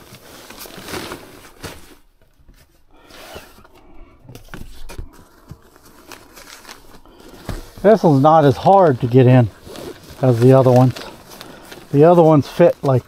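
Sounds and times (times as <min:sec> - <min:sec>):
nylon fabric rustling: 0:00.0 - 0:02.1, 0:04.4 - 0:13.0
stiff sheet scraping: 0:03.0 - 0:13.0.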